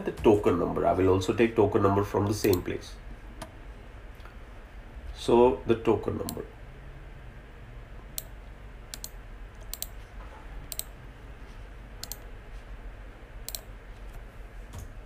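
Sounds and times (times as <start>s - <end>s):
faint low hum: 0.0s - 15.0s
computer mouse clicking: 8.2s - 10.0s, 10.7s - 11.0s, 12.0s - 12.3s, 13.4s - 14.2s.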